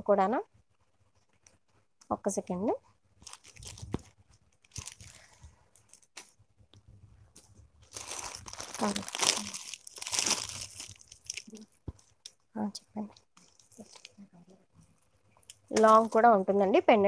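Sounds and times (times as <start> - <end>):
packaging crinkling: 3.2 - 6.3, 7.8 - 12.4, 13.2 - 14.3.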